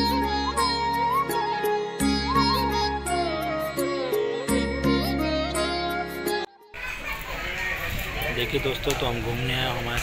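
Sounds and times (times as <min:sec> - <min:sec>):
ornamented melody over drone: 0:00.0 - 0:06.7.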